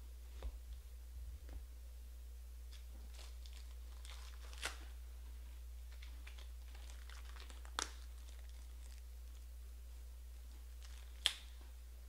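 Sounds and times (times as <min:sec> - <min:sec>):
low hum: 0:00.0 - 0:07.0
wrappers crinkling: 0:02.7 - 0:05.0, 0:05.8 - 0:09.5, 0:10.6 - 0:11.6.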